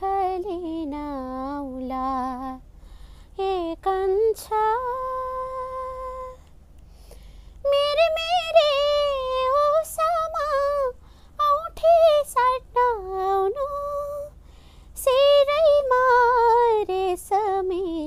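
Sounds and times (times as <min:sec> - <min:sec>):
woman singing unaccompanied: 0:00.0 - 0:02.6, 0:03.4 - 0:06.4, 0:07.6 - 0:14.4, 0:15.0 - 0:18.0.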